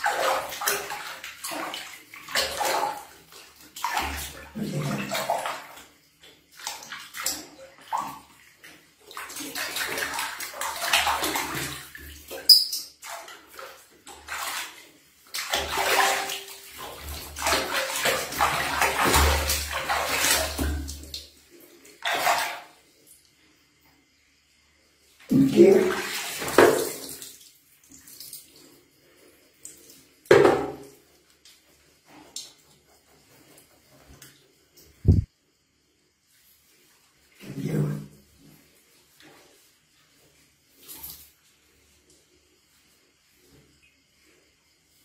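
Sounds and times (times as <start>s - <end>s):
water splashing in plastic basin: 0.0s - 22.9s, 25.2s - 28.7s, 29.6s - 31.5s, 37.4s - 38.7s.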